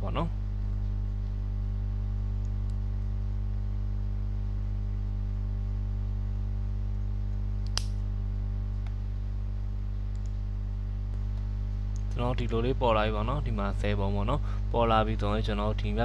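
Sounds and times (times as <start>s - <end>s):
low electrical hum: 0.0s - 16.0s
sharp click: 7.6s - 8.0s.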